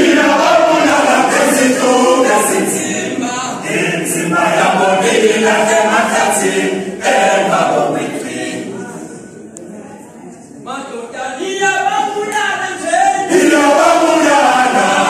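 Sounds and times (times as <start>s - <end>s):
male choir singing a cappella: 0.0s - 9.4s, 12.7s - 15.0s.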